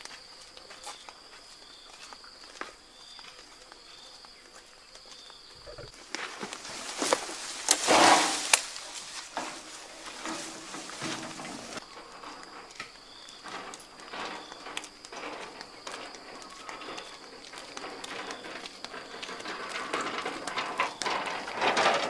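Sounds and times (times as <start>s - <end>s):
light rustles and twig snaps: 6.0s - 11.0s
branches crashing onto brush: 6.0s - 11.9s.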